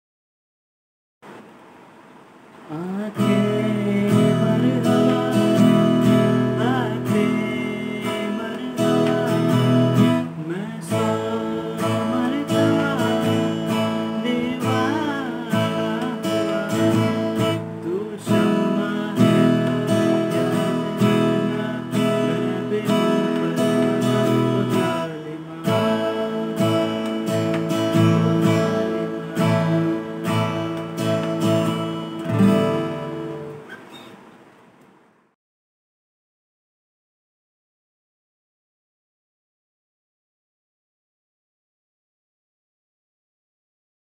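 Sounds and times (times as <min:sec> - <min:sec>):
acoustic guitar strumming: 0:02.7 - 0:34.2.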